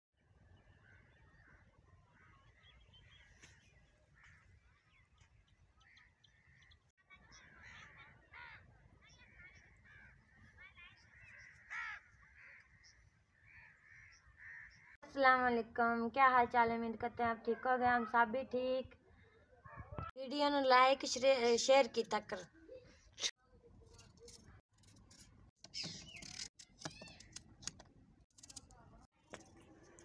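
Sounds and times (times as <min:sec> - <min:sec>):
birds chirping and calling: 0:00.5 - 0:15.0, 0:25.6 - 0:27.5.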